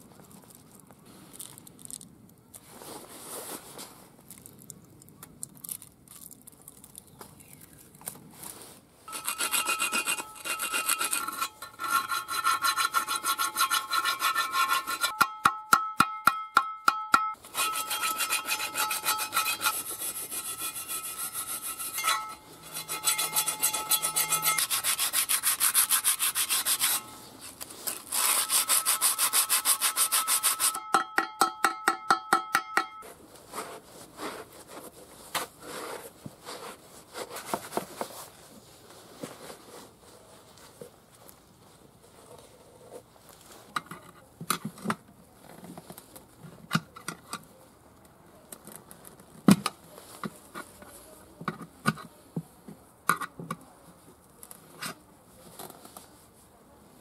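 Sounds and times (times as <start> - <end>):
blade scraping rust off metal: 9.1 - 15.5, 17.4 - 31.0
metal rim ringing: 9.1 - 19.8, 20.5 - 24.7, 30.7 - 33.0
sharp strikes on metal: 15.1 - 19.6, 30.7 - 33.0.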